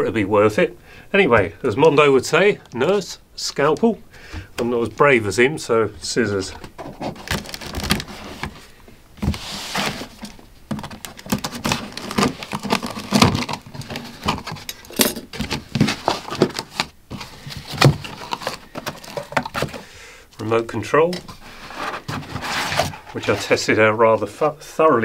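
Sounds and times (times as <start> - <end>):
packing rustling: 6.4 - 19.9.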